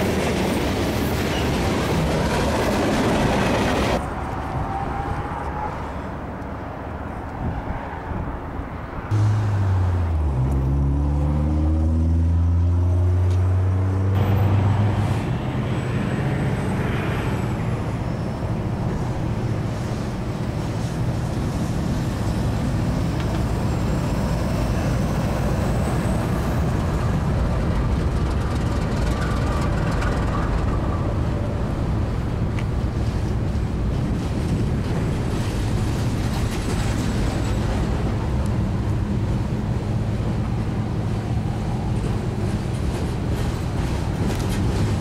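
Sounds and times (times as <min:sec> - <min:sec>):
diesel locomotive engine drone: 0:00.0 - 0:45.0
freight train rumbling: 0:00.0 - 0:45.0
hopper cars rolling past: 0:09.1 - 0:45.0.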